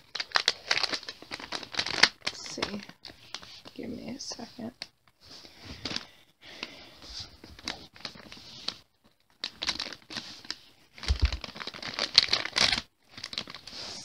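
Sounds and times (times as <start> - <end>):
foil packet crinkling and tearing: 0.0 - 3.7, 7.5 - 14.0.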